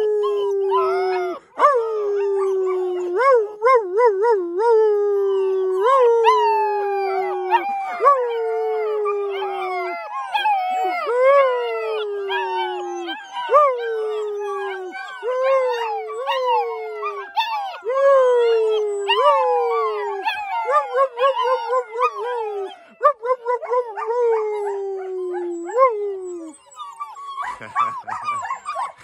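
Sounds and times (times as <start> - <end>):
puppies howling: 0.0 - 29.0
puppies yipping: 6.2 - 17.9, 18.9 - 29.0.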